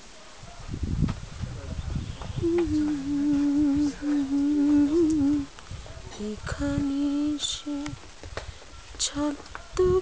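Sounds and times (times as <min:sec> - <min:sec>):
woman humming a slow tune: 0:02.4 - 0:05.5.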